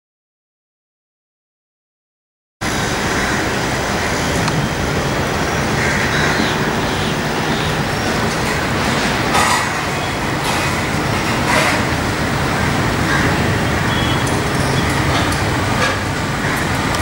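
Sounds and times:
city traffic noise: 2.6 - 17.0
jet engines roaring: 2.6 - 17.0.

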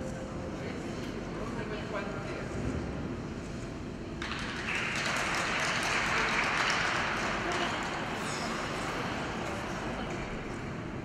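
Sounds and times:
spectators applauding: 4.2 - 9.2.

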